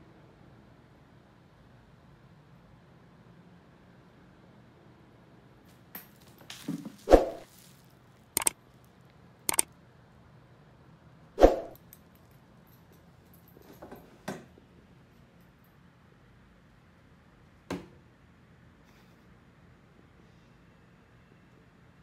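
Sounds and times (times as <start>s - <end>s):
rustling: 6.0s - 8.5s
short sharp clicks: 8.4s - 8.6s, 9.5s - 9.7s.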